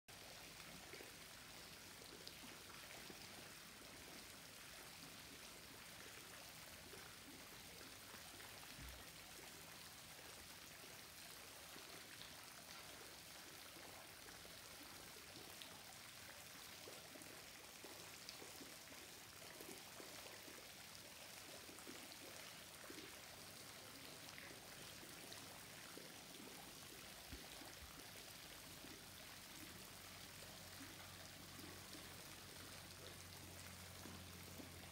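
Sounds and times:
faint steady hiss: 0.1 - 34.9.

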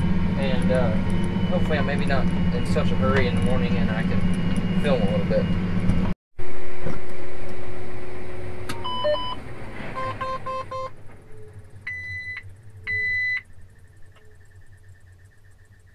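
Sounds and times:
tractor engine hum: 0.0 - 15.9
tractor cab warning beeps: 0.4 - 5.6, 8.8 - 9.4, 10.0 - 10.9, 11.9 - 13.4.

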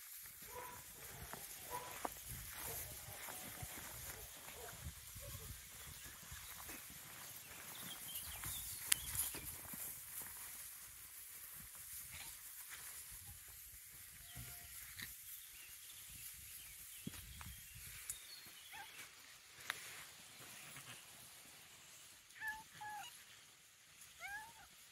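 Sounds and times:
cat meowing: 24.2 - 24.7.

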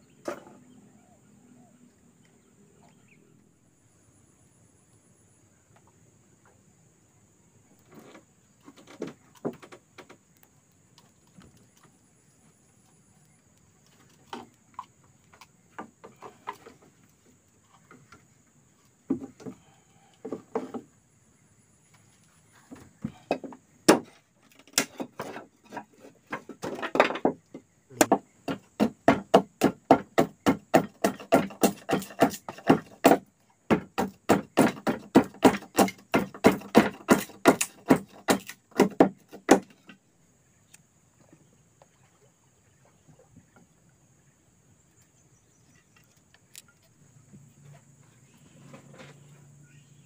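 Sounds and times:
hard blows on wood: 27.9 - 39.8.

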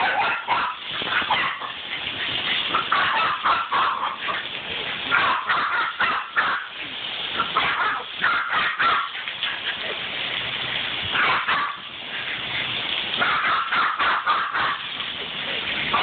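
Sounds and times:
puppy yapping: 0.0 - 1.8.

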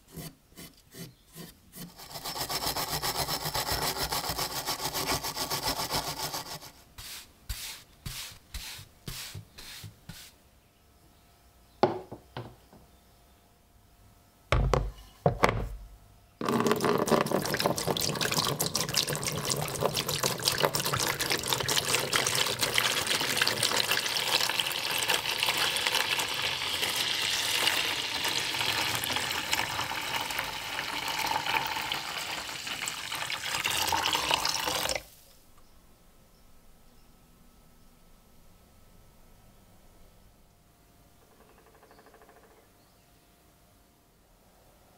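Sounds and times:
brush strokes: 3.8 - 10.4
knocks and low thuds: 14.5 - 15.9
liquid pouring into a tray: 16.4 - 35.1.

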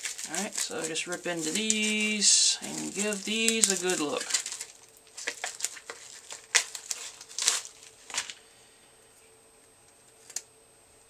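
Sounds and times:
bubble wrap ripping and crinkling: 0.0 - 8.4.

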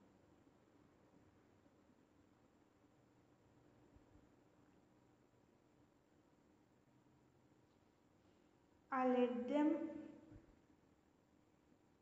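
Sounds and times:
person speaking: 8.9 - 10.1.

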